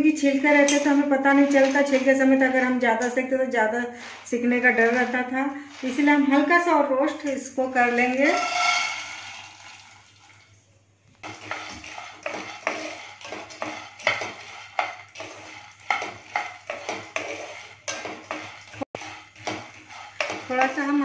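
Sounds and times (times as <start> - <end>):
wooden spatula scraping peanuts in pan: 0.0 - 9.8, 11.2 - 21.0.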